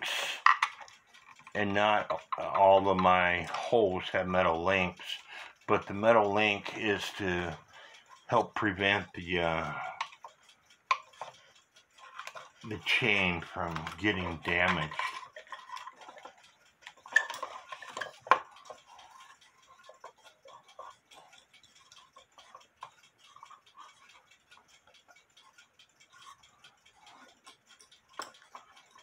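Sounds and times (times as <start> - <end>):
metal tool tapping on wood: 0.4 - 0.9, 16.9 - 21.3.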